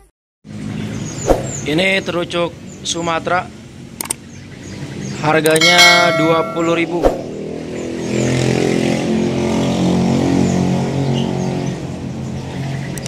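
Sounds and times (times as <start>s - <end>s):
vehicle engine passing by: 0.5s - 2.1s, 6.7s - 12.9s
caged birds chirping: 0.5s - 13.0s.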